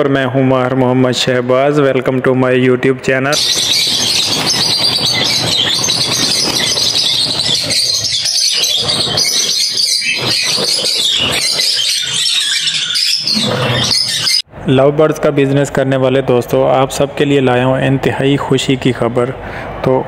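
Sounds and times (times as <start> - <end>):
lovebirds screeching and chattering: 3.3 - 14.4.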